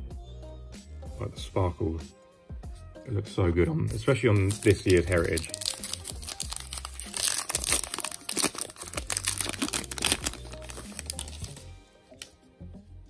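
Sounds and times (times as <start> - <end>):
background music: 0.0 - 13.0
wrapper tearing and crinkling: 4.4 - 11.6.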